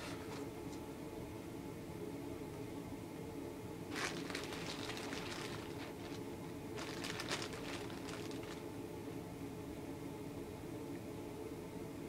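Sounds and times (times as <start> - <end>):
steady low hum: 0.0 - 12.0
plastic bags crinkling: 3.9 - 8.6.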